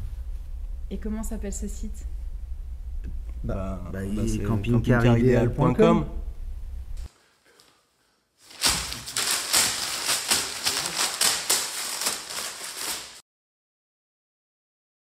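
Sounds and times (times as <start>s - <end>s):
paper being crumpled: 8.4s - 13.2s.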